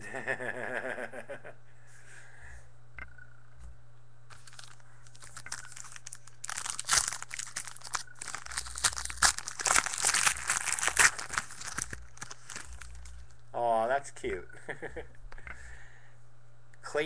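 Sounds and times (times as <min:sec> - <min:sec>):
wrapper tearing and crinkling: 0:04.3 - 0:13.4.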